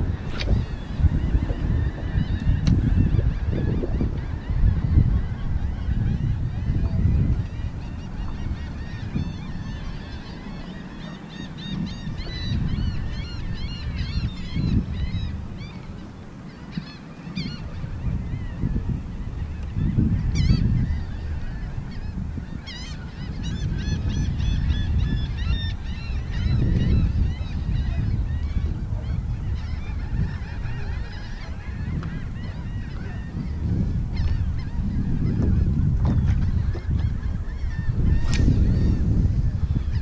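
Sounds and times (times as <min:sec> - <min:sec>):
birds chirping: 0:00.0 - 0:40.0
low rumble: 0:38.0 - 0:40.0.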